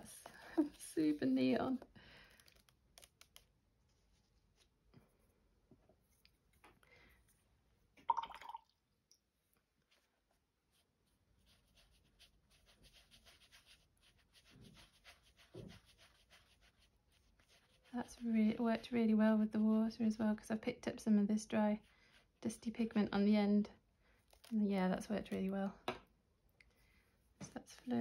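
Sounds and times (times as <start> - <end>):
paintbrush scratching on paper: 9.9 - 19.1, 21.5 - 23.0.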